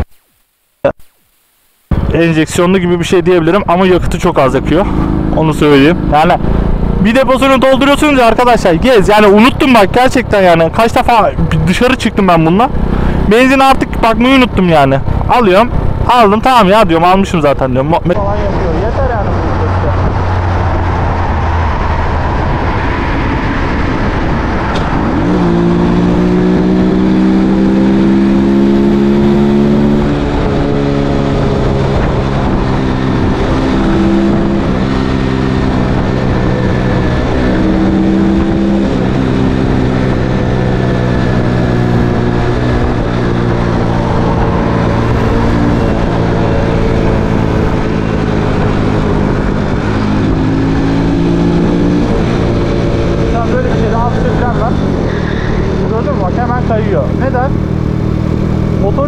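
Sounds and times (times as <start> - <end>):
wind rushing over microphone: 1.9 - 59.0.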